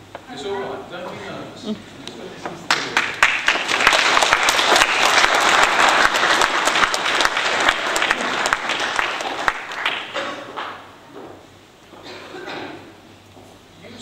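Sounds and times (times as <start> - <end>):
audience applauding: 2.6 - 10.9.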